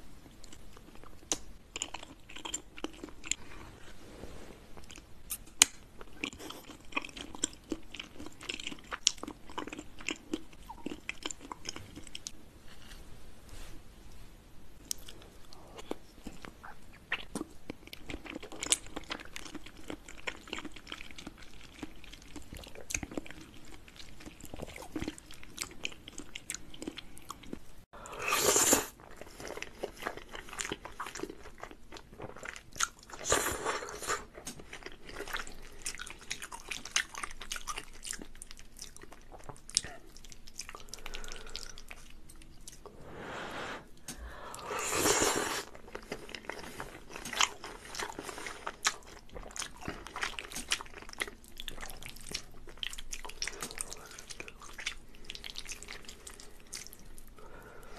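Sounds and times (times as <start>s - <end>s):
chewing jelly candy: 0.2s - 3.8s, 4.8s - 13.0s, 14.8s - 27.8s, 28.9s - 42.9s, 44.0s - 57.9s
man slurping noodles: 28.1s - 29.0s, 43.0s - 45.7s.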